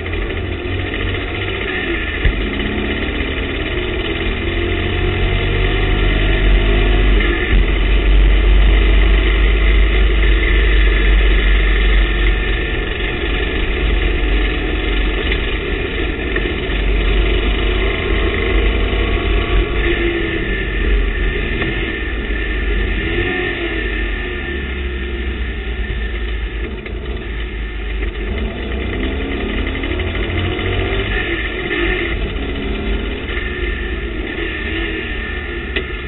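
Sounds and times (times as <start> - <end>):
race car engine droning: 0.0 - 36.0.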